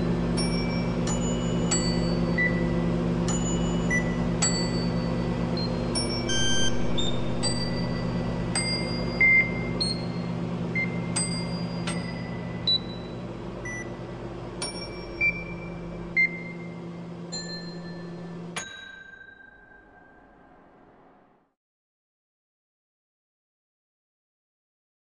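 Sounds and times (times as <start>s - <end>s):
microwave oven humming: 0.0s - 21.4s
microwave dings: 0.3s - 14.0s, 14.6s - 19.8s
keypad beeps: 5.6s - 7.7s.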